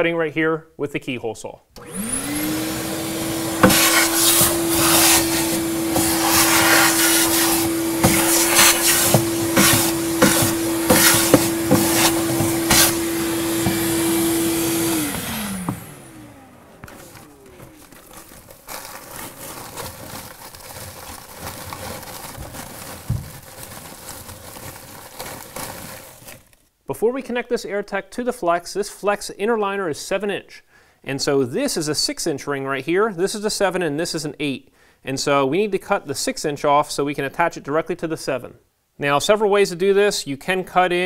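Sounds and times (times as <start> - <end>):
shop vac winding down whine: 1.8 - 18.4
shop vac running: 1.8 - 26.4
debris rattling up hose: 2.9 - 15.3, 16.8 - 26.6
flex duct rustling and crinkling: 3.5 - 14.1, 16.8 - 26.8.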